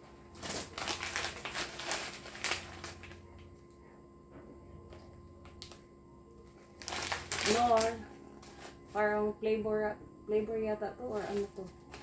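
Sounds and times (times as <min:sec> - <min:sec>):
packaging rustling and crinkling: 0:00.3 - 0:03.4, 0:06.4 - 0:08.9, 0:11.1 - 0:12.0.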